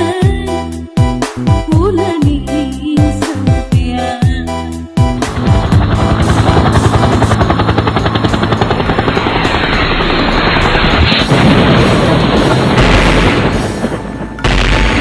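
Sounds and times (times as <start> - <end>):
fast-pulsing fluttering noise: 5.2 - 11.3.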